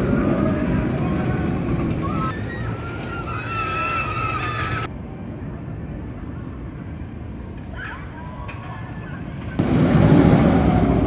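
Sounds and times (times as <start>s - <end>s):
distant rumble: 0.0s - 4.9s, 9.4s - 11.0s
roller coaster rumbling on track: 0.0s - 11.0s.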